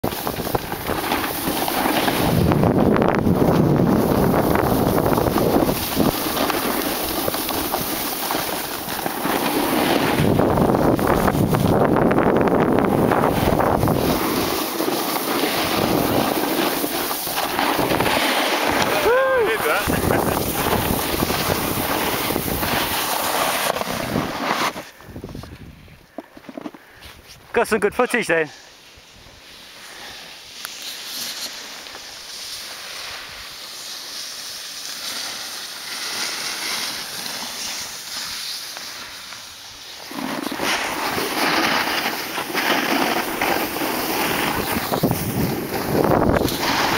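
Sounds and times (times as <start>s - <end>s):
snowboard sliding over snow: 0.0s - 46.9s
wind buffeting microphone: 2.1s - 7.9s, 10.0s - 14.5s, 15.5s - 23.0s, 25.0s - 26.0s, 43.2s - 46.9s.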